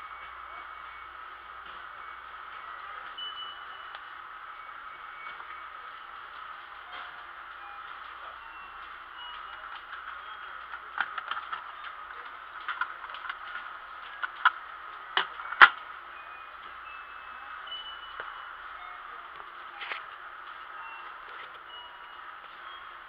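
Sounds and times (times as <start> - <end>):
shop background hiss: 0.0 - 23.0
plastic toy clicks and knocks: 9.4 - 15.8.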